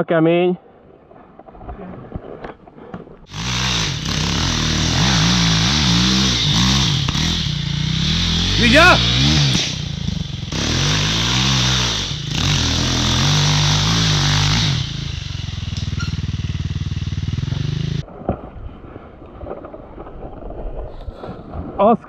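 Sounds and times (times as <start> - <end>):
motorcycle engine revving: 3.3 - 18.0.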